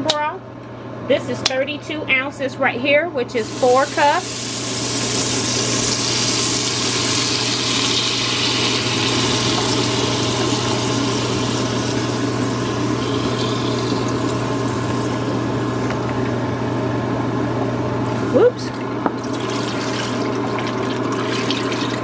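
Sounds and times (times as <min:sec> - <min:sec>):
broth pouring and sizzling: 0:03.5 - 0:16.0.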